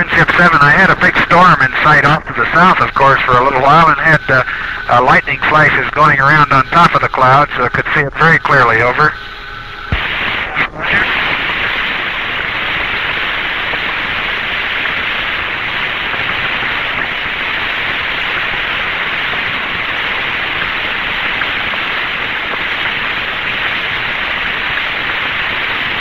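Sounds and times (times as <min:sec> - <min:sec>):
radio static hiss: 0:00.0 - 0:26.0
radio clicks: 0:09.9 - 0:17.4.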